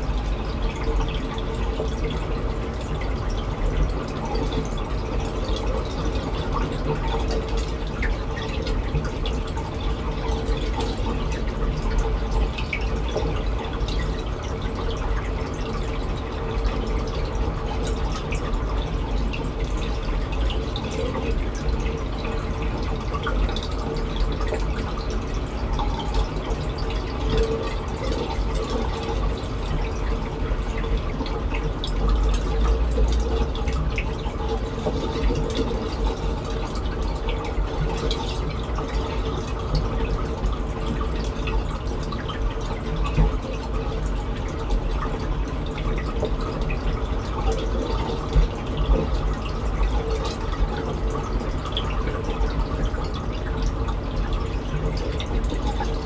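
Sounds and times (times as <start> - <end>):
low steady hum: 0.0 - 56.0
water trickling and dripping: 0.0 - 56.0.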